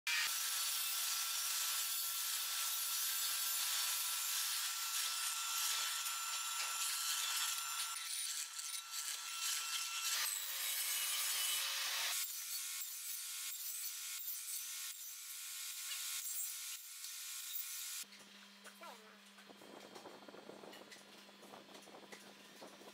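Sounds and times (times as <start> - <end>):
table saw cutting wood: 0.1 - 18.1.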